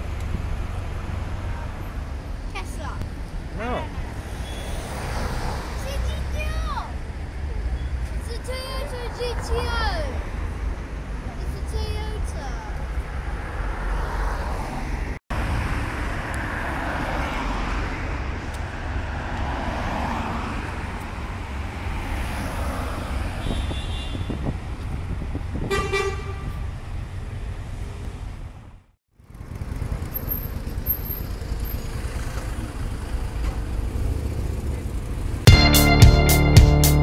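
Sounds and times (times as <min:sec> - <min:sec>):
road traffic rumble: 0:00.0 - 0:37.0
car horn toot: 0:25.7 - 0:26.5.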